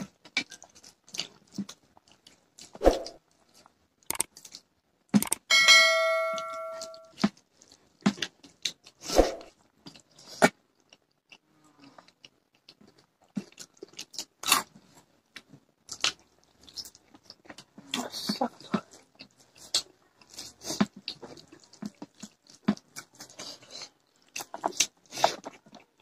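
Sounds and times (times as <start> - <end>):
chewing and crunching: 0.0 - 5.4, 6.8 - 26.0
bright multi-tone chime: 5.5 - 7.1.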